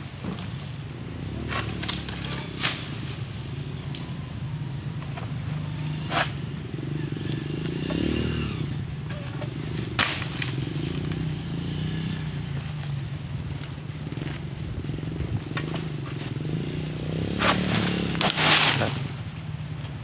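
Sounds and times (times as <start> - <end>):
small engine droning: 0.0 - 20.0
sickle cracking into palm stalks: 1.5 - 3.2, 9.1 - 11.2, 17.4 - 19.1.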